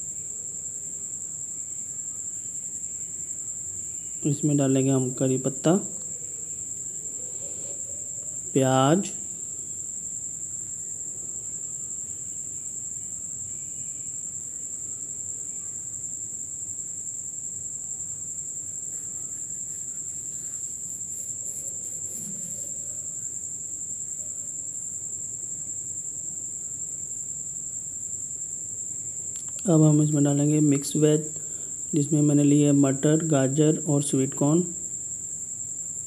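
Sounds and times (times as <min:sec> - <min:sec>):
steady high-pitched whine: 0:00.0 - 0:36.0.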